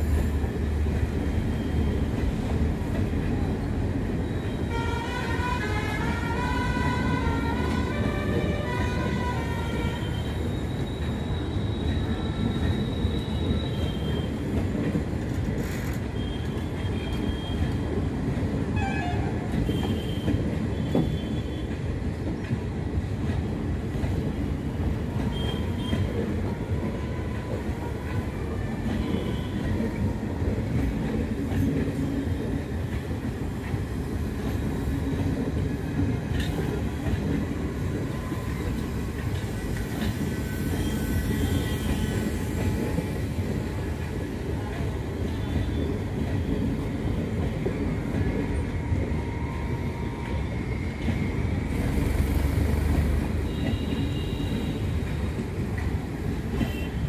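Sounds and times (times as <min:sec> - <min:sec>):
train wheels rumbling on rails: 0:00.0 - 0:57.0
high wheel squeals: 0:10.0 - 0:14.4.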